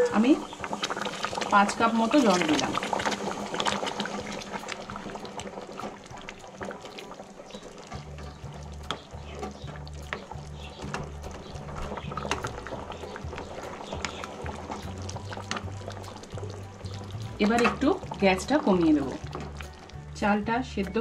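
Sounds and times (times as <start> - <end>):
boiling water bubbling in a pot: 0.0 - 20.3
background music with low bass: 0.0 - 21.0
small clicks and ticks: 3.7 - 17.7.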